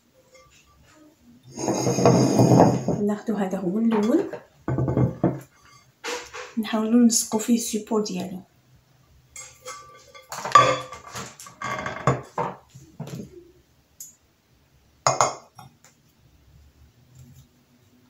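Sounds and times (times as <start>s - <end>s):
glass pieces clattering and clinking: 9.4s - 12.3s.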